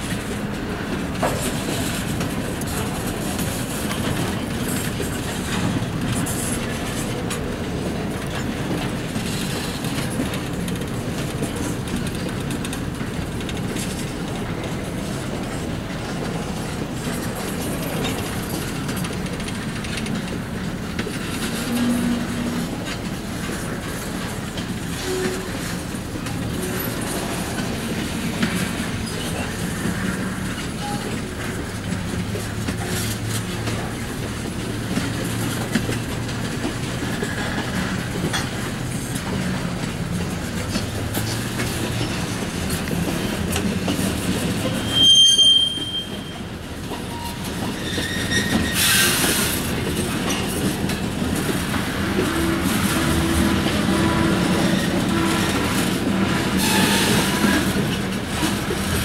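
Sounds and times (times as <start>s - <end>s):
freight car wheels rumbling on rail: 0.0s - 59.0s
wheels squealing against rail: 21.0s - 31.6s, 43.8s - 58.6s.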